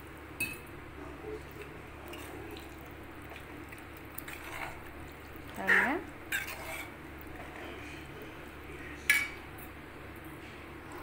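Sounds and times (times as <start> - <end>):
spatula clanking in a pan: 5.7 - 6.9
metal spatula scraping a pan: 5.7 - 7.0.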